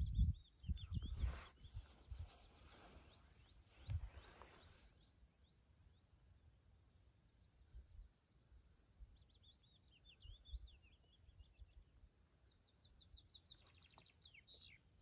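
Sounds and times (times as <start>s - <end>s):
songbirds singing: 0.0s - 15.0s.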